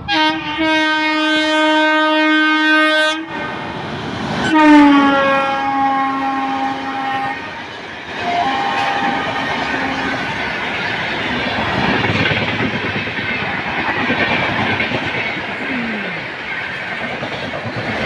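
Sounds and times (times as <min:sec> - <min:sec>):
locomotive horn: 0:00.0 - 0:03.8, 0:04.4 - 0:07.6, 0:08.2 - 0:10.3
train wheels clacking over rails: 0:06.6 - 0:18.0.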